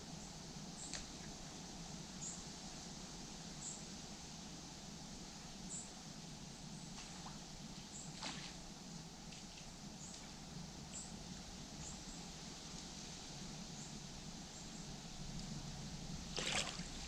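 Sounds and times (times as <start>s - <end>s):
flowing river water: 16.2s - 17.0s.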